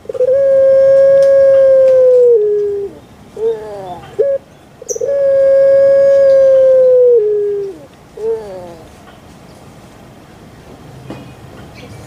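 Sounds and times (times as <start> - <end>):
dove long coo: 0.0 - 8.9.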